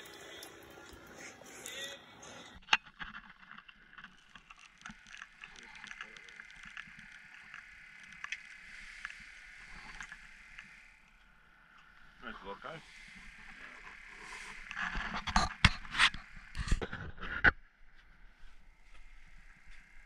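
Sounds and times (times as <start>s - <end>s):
small scattered ticks: 2.7s - 17.3s, 18.4s - 20.0s
faint hiss: 8.5s - 14.9s.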